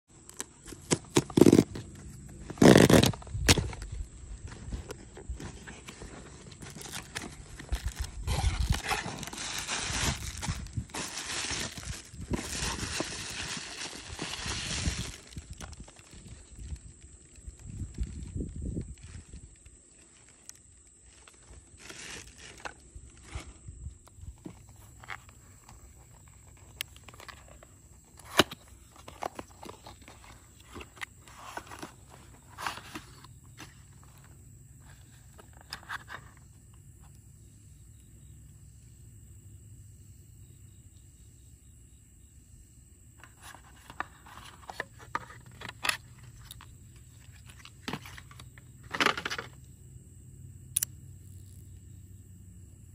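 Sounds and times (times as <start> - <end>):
cardboard box opened by hand: 0.3 - 16.3, 21.8 - 36.4, 43.2 - 49.6
bubble wrap crinkling: 0.3 - 23.6
box flap snapping: 0.4 - 1.9, 2.5 - 3.8
plastic tray rustling: 0.5 - 16.3, 24.3 - 36.4, 43.2 - 49.6
cardboard box clicks and scrapes: 0.6 - 3.8, 4.6 - 14.4.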